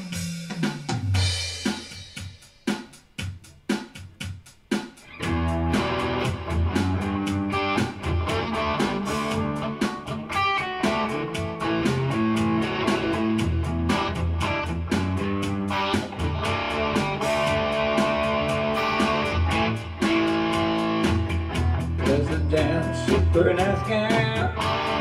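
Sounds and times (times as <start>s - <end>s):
electric guitar strumming: 5.0s - 25.0s.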